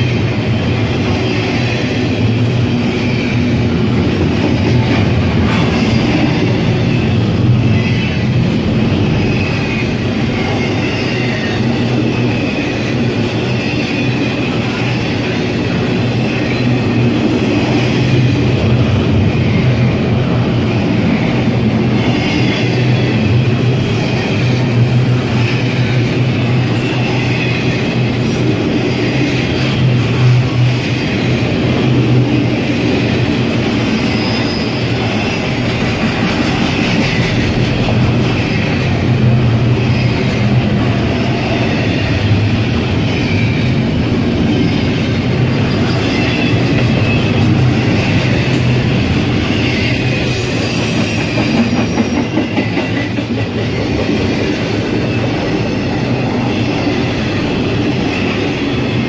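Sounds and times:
train wheels rumbling on rail: 0:00.0 - 0:59.0
high-pitched wheel squeals: 0:33.9 - 0:35.6.

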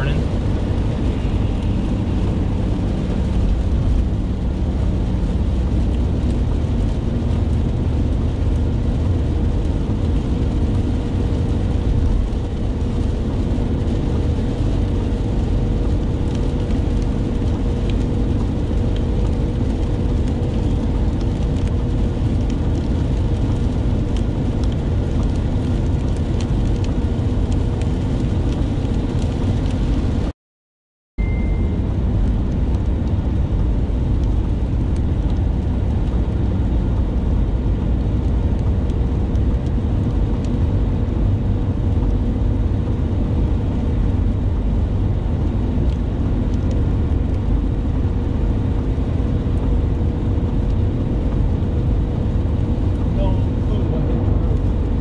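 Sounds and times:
vehicle road rumble: 0:00.0 - 0:30.3, 0:31.2 - 0:55.0.

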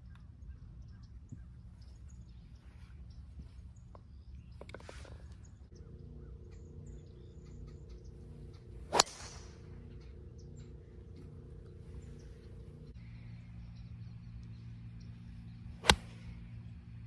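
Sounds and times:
steady low hum: 0:00.0 - 0:17.0
golf club striking ball: 0:08.9 - 0:10.1, 0:15.8 - 0:16.3.

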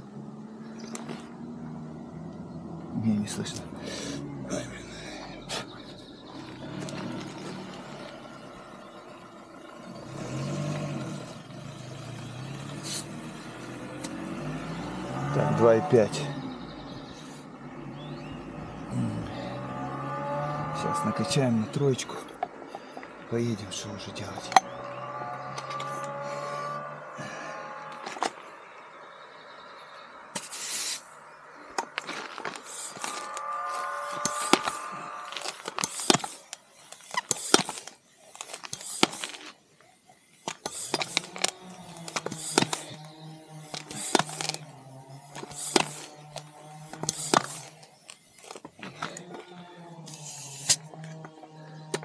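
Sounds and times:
hand pump hissing: 0:35.4 - 0:39.6, 0:40.3 - 0:43.0, 0:43.7 - 0:44.6, 0:45.3 - 0:46.2, 0:46.9 - 0:48.7, 0:50.1 - 0:50.9.

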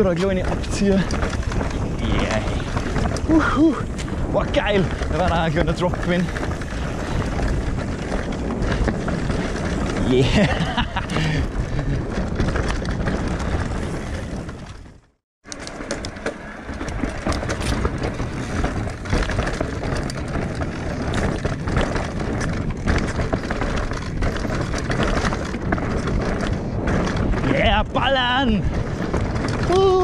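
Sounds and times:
bike rattling: 0:00.0 - 0:30.0
bike tyres over roots and stones: 0:00.0 - 0:30.0.

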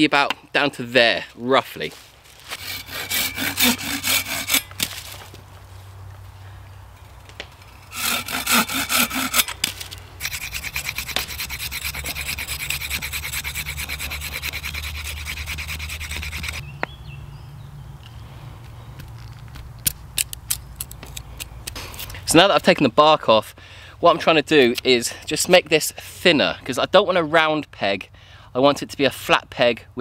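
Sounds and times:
saw cutting a stick: 0:02.4 - 0:05.1, 0:07.6 - 0:16.6
knife scraping bark: 0:02.4 - 0:05.3, 0:07.0 - 0:16.6, 0:20.2 - 0:22.3.

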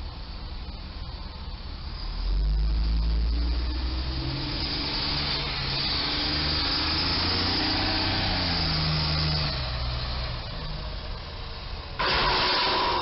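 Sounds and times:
truck diesel engine: 0:00.0 - 0:13.0
loud crash with scraping: 0:12.0 - 0:13.0.

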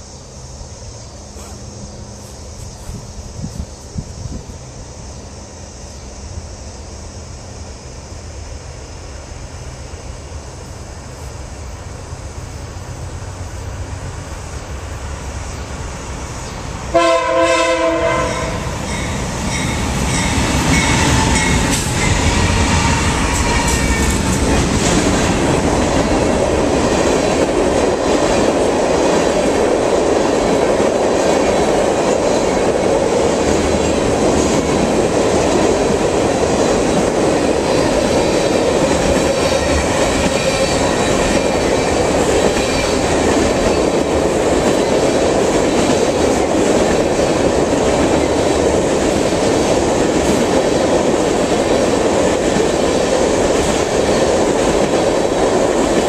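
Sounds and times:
diesel locomotives passing: 0:00.0 - 0:56.0
wheel and rail rumble: 0:00.0 - 0:56.0
locomotive horn blast: 0:16.9 - 0:18.7
rhythmic clickety-clack: 0:18.9 - 0:56.0.

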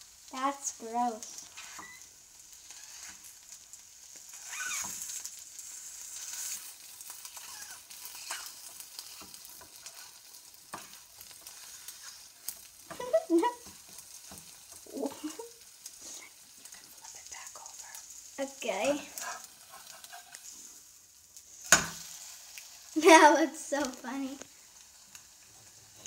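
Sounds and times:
egg sizzling in a pan: 0:00.0 - 0:26.0
metal spatula scraping a pan: 0:02.6 - 0:03.5, 0:04.3 - 0:15.3, 0:19.0 - 0:20.8.

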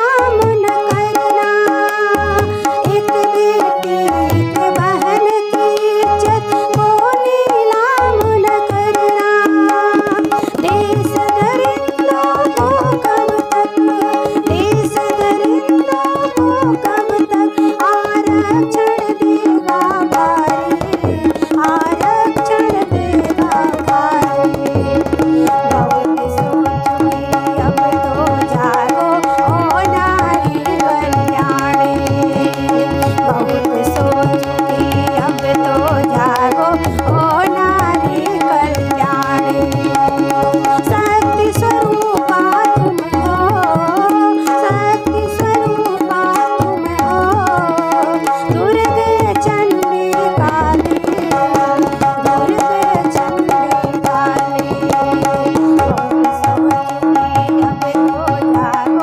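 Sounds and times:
harmonium: 0:00.0 - 0:59.0
tabla rhythm: 0:00.0 - 0:59.0
woman singing: 0:00.0 - 0:59.0.

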